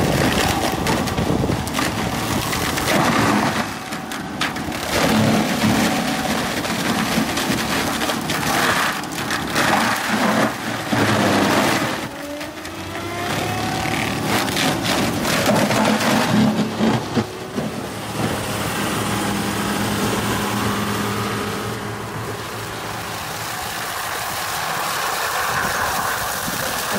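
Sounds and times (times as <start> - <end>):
wood knocking and cracking: 0.0 - 13.0, 13.7 - 18.4
shredder running: 0.0 - 26.9.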